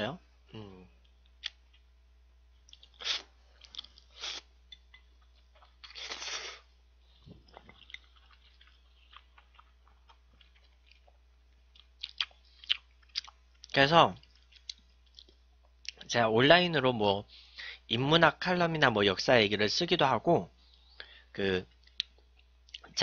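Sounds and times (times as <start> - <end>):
person slurping noodles: 3.0 - 3.3, 4.2 - 4.5, 5.9 - 6.7
wet mouth clicks of chewing: 3.6 - 4.1, 7.5 - 11.2, 11.8 - 16.0.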